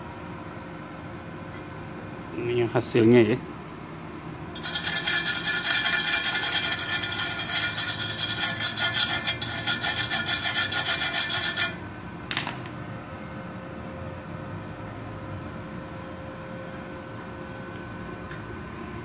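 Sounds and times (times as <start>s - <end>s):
wire brush scrubbing metal: 4.6s - 11.8s.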